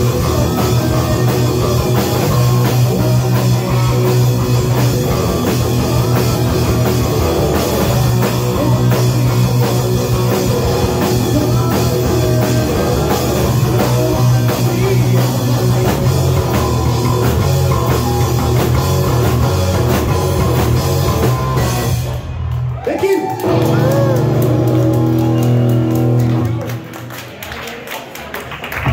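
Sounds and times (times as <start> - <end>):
drum kit: 0.0 - 26.9
bass guitar: 0.0 - 27.2
electric guitar: 0.0 - 27.2.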